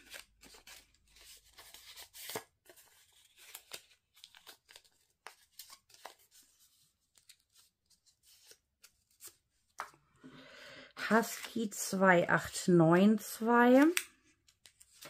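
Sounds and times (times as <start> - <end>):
paper crackling and crinkling: 0.0 - 9.8, 13.4 - 15.0.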